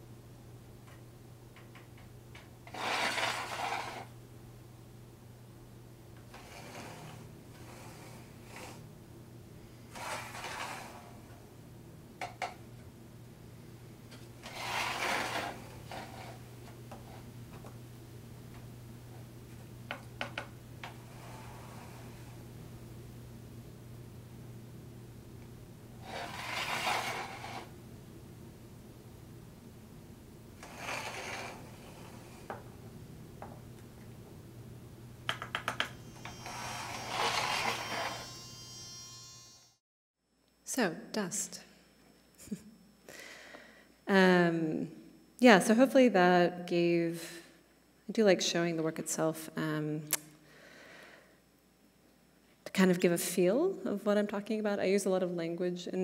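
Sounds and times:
steady low hum: 0.0s - 2.8s, 3.4s - 39.7s
rubbing and scraping: 2.7s - 4.1s, 9.9s - 11.1s, 14.4s - 17.3s, 26.0s - 27.7s, 30.6s - 32.5s.

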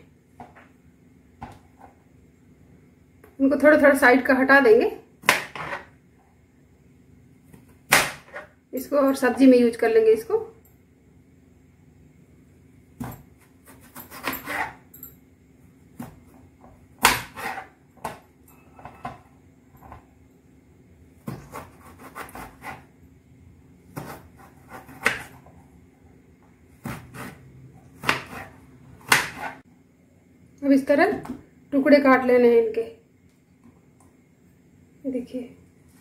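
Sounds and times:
knife slicing potato on board: 13.0s - 14.8s, 17.0s - 18.2s, 21.2s - 23.0s, 23.9s - 25.5s, 26.7s - 29.6s.

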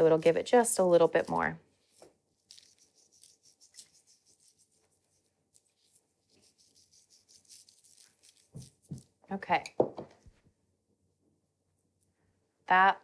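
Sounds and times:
sugar sprinkling rustles: 0.0s - 9.2s.

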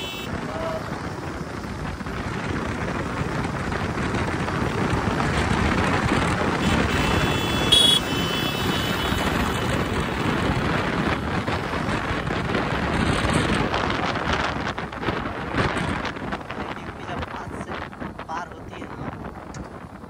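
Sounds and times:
road noise: 0.0s - 20.0s
wind rushing over microphone: 0.0s - 20.0s.

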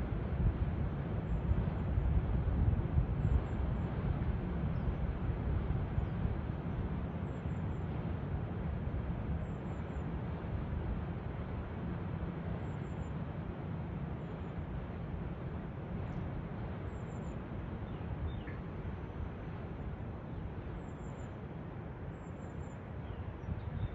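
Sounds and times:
faint bird chirp: 16.9s - 18.8s, 20.8s - 21.4s, 22.1s - 23.9s.

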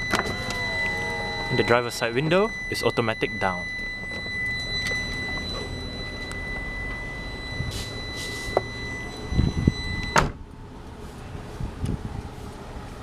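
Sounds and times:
high-pitched car warning tone: 0.0s - 10.4s
car engine idling hum: 0.0s - 13.0s
car door shutting with a thud: 10.0s - 10.4s.

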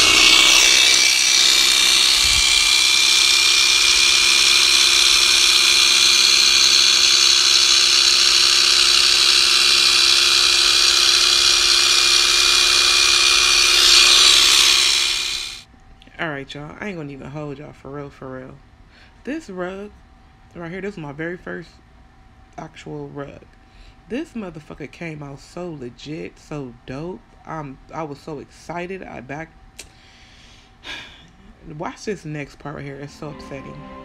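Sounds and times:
electric carpet trimmer whining: 0.0s - 15.6s.

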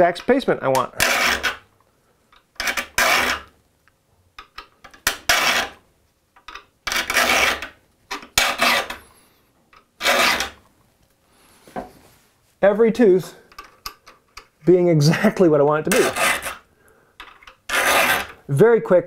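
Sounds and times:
saw file rasping on steel teeth: 1.0s - 1.6s, 2.6s - 3.5s, 5.3s - 5.8s, 6.9s - 7.7s, 8.4s - 9.0s, 10.0s - 10.6s, 15.9s - 16.6s, 17.7s - 18.4s.

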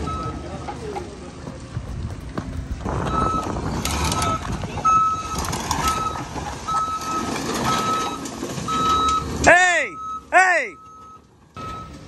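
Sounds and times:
excavator travel alarm beeping: 0.0s - 0.7s, 3.0s - 12.0s
diesel engine running: 0.0s - 12.0s.

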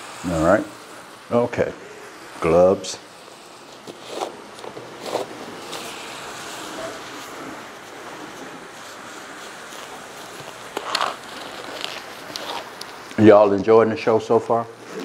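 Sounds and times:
food sizzling in skillet: 0.0s - 13.2s
plastic gloves crinkling: 2.4s - 13.3s.

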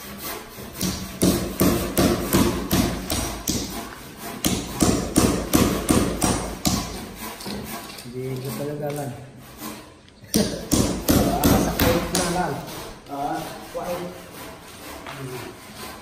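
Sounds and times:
hammer striking chisel on concrete: 0.8s - 9.2s, 10.3s - 12.6s.

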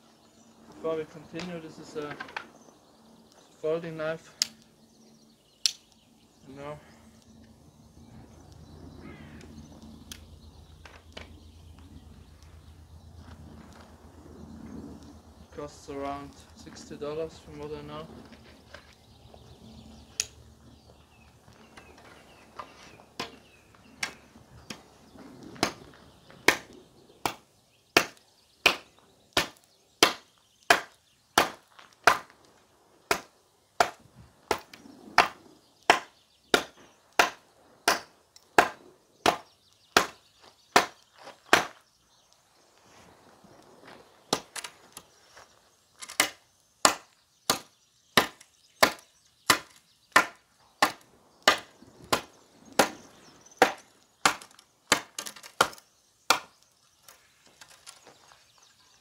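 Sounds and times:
knife chopping into wood: 33.1s - 40.2s.

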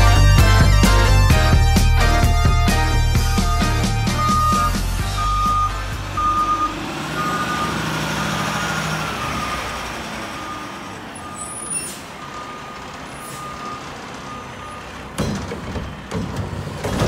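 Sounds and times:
garbage truck engine running: 0.0s - 17.0s
backup alarm beeping: 3.1s - 7.8s, 9.2s - 15.0s.

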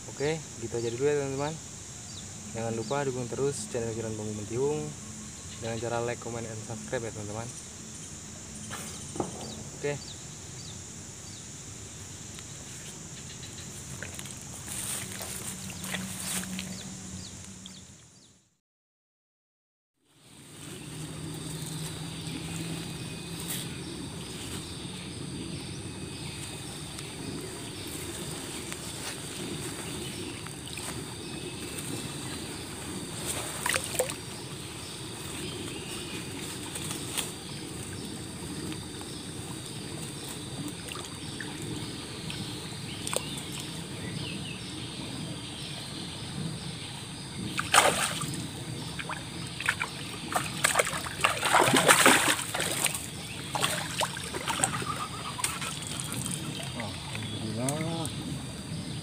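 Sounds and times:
river water washing: 26.6s - 34.6s, 39.6s - 43.8s, 47.5s - 57.3s
fish splashing in water: 33.6s - 34.3s, 47.5s - 57.3s.

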